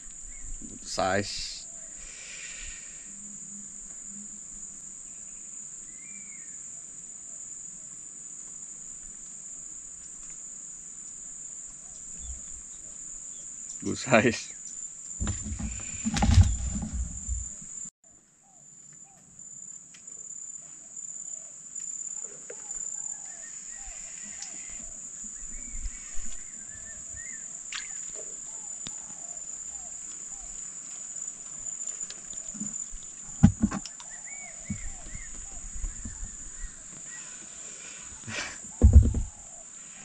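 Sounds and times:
insects droning: 0.0 - 40.0
microphone handling rumble: 15.2 - 17.6, 38.7 - 39.4.

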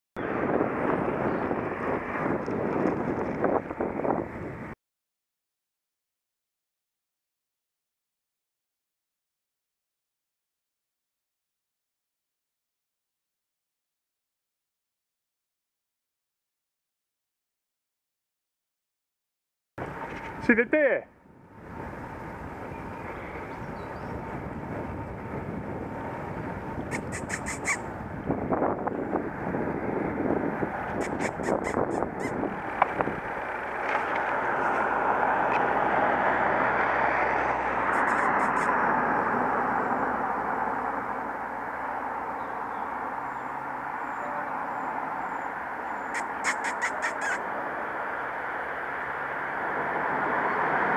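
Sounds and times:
bicycle tyres on road: 0.2 - 4.8, 19.8 - 20.5, 21.2 - 31.3, 32.2 - 46.0
wind on microphone: 0.2 - 4.8, 21.6 - 41.4
outdoor rushing noise: 19.8 - 44.0
sharp bird calls: 26.8 - 27.9, 30.9 - 32.5, 37.9 - 38.8, 42.3 - 47.5.

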